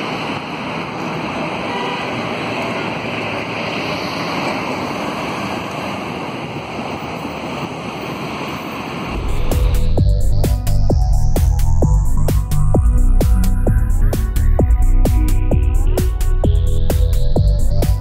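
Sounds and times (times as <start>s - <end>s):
tyres hissing on wet road: 0.0s - 9.8s.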